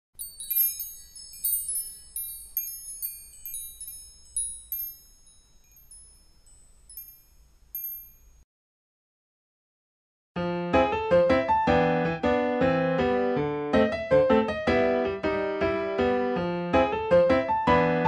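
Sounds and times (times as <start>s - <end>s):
high tinkling chimes: 0.1s - 8.5s.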